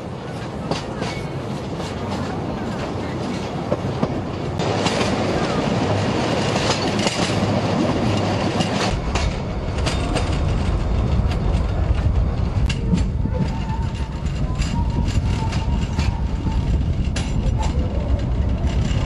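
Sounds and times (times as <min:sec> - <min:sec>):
train wheels clattering: 0:00.3 - 0:19.0
deep rumble: 0:07.5 - 0:19.0.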